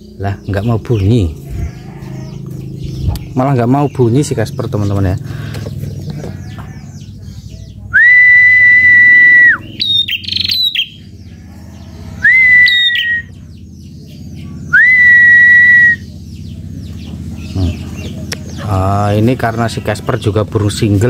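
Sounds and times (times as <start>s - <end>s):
bird chirps: 0.0s - 21.0s
long whistled notes: 12.2s - 13.3s, 14.7s - 16.0s.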